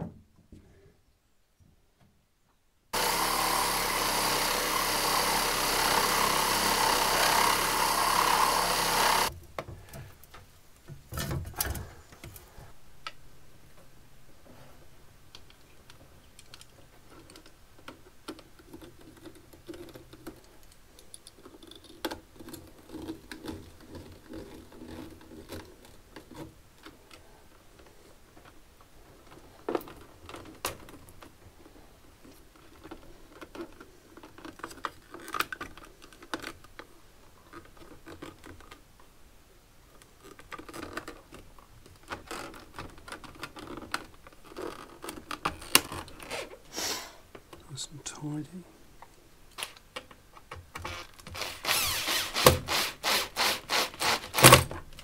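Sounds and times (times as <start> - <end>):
reciprocating saw cutting plastic pipe: 3.0 - 9.3, 50.8 - 54.7
clicks and rustles of wires: 15.3 - 39.1, 39.9 - 46.7.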